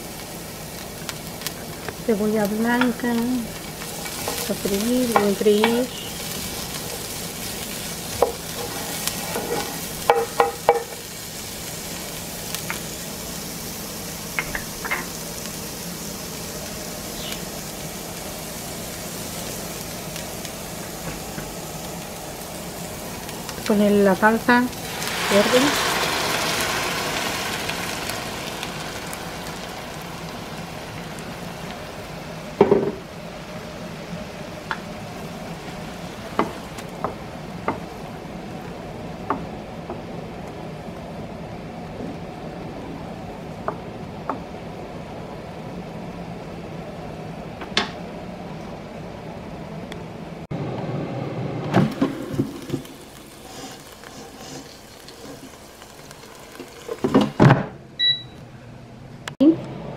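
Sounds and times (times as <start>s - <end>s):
salsa sizzling in a pan: 0.0s - 46.0s, 52.0s - 57.4s
wooden spoon stirring and tapping: 8.2s - 10.9s.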